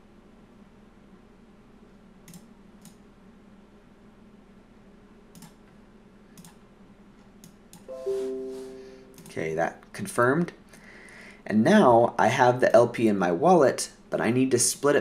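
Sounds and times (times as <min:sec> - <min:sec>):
low steady hum: 0:00.0 - 0:15.0
computer mouse clicking: 0:02.2 - 0:03.0, 0:05.3 - 0:05.7, 0:06.4 - 0:06.6, 0:07.3 - 0:07.9.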